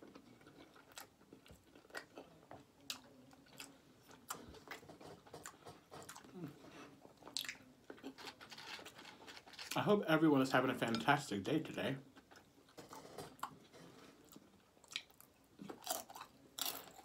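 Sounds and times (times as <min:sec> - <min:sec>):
person chewing with wet smacks: 0:00.0 - 0:08.3, 0:13.4 - 0:17.0.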